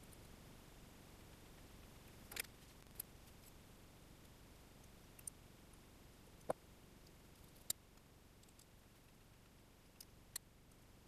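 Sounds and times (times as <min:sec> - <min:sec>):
faint clicks of metal wire terminals: 0:04.8 - 0:05.8, 0:06.4 - 0:10.8.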